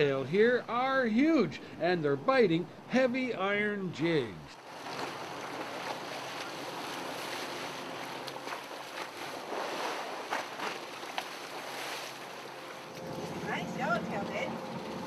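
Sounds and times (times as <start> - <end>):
wind and sea rushing: 4.5 - 15.0.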